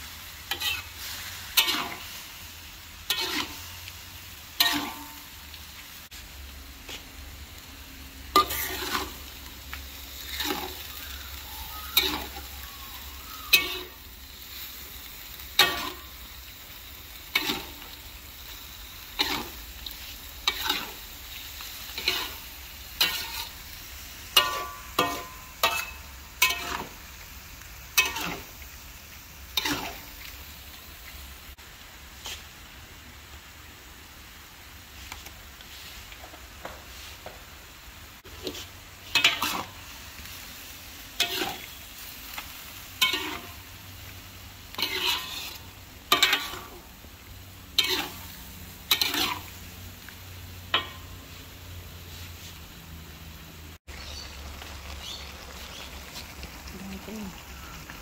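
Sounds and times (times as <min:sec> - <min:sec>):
steady sizzle: 0:00.0 - 0:58.0
metal spoon scraping wok: 0:00.4 - 0:02.4, 0:03.0 - 0:05.4, 0:08.3 - 0:27.0, 0:27.9 - 0:28.6, 0:29.5 - 0:30.3, 0:38.3 - 0:39.9, 0:41.1 - 0:43.7, 0:44.7 - 0:46.9, 0:47.7 - 0:49.8, 0:50.6 - 0:52.6.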